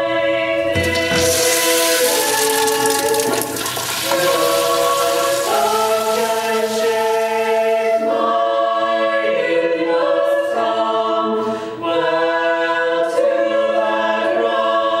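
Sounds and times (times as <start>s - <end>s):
choir singing held chords: 0.0s - 15.0s.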